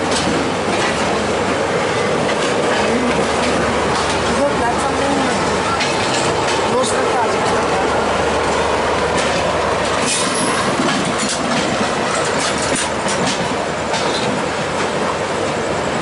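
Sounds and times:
train rumble: 0.0 - 16.0
wheels clicking over rail joints: 2.3 - 7.7, 8.4 - 14.9.

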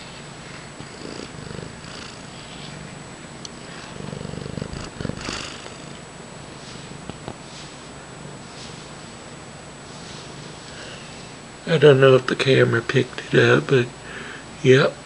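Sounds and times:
cat purring: 0.0 - 6.0.

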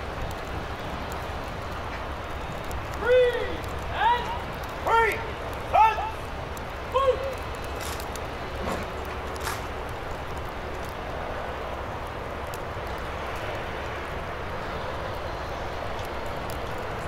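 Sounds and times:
distant engine rumble: 0.0 - 17.0
faint ticks: 12.0 - 14.0.

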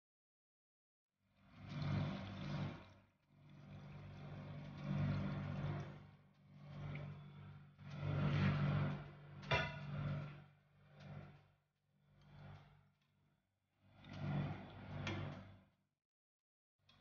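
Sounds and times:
broth pouring and splashing: 1.4 - 7.3.

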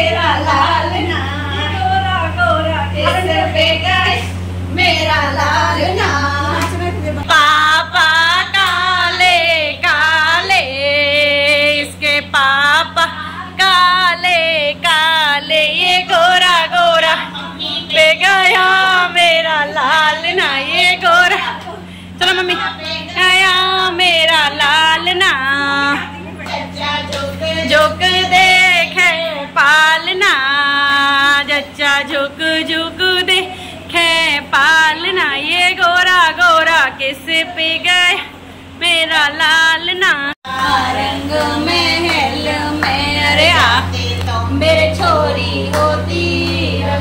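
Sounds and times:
women singing unaccompanied: 0.0 - 47.0.

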